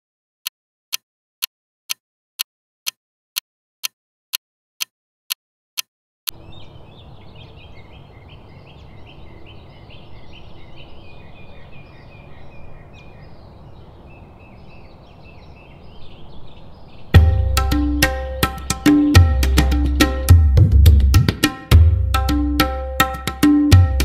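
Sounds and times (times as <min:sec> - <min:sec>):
sharp ticks: 0:00.4 - 0:02.0, 0:03.8 - 0:06.4
birds chirping: 0:06.3 - 0:20.3.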